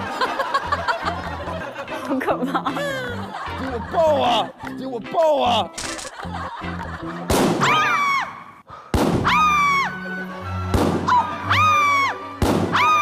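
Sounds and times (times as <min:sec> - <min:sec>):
balloon bursting: 0:12.4 - 0:12.8.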